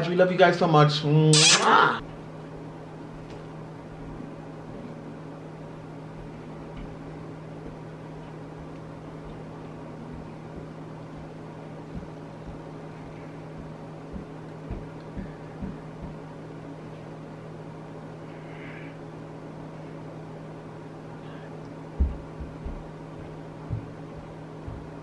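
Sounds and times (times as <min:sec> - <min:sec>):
room tone hiss: 0:00.0 - 0:25.0
steady low hum: 0:00.0 - 0:25.0
soft low thumps: 0:06.1 - 0:16.4, 0:21.9 - 0:25.0.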